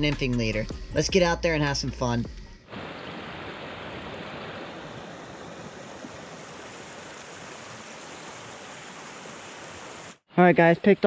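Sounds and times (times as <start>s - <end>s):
stream water rushing over rocks: 2.7s - 10.2s.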